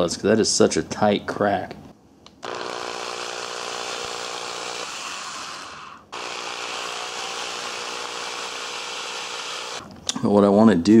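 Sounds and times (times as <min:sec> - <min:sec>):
power drill boring into wood: 0:02.4 - 0:09.8.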